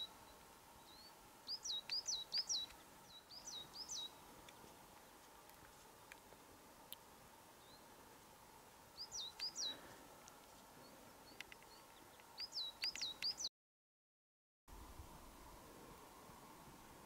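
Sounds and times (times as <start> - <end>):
small bird chirping: 0.0 - 4.2, 9.0 - 9.8, 10.8 - 13.5
faint steady hiss: 0.0 - 13.5, 14.7 - 17.0.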